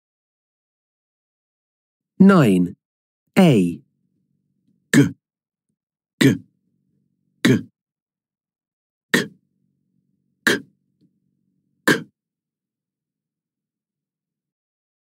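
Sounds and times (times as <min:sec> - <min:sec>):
voice saying consonant sounds: 0:02.2 - 0:02.8, 0:03.4 - 0:03.8, 0:04.9 - 0:05.2, 0:06.2 - 0:06.5, 0:07.4 - 0:07.7.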